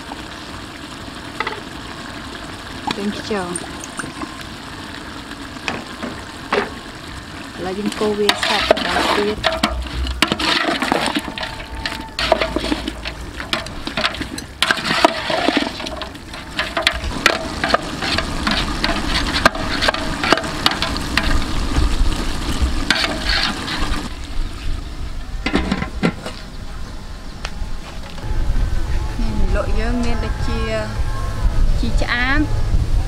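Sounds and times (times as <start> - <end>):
curry sizzling and sloshing: 0.0 - 26.5
metal spatula scraping a pot: 8.2 - 24.1.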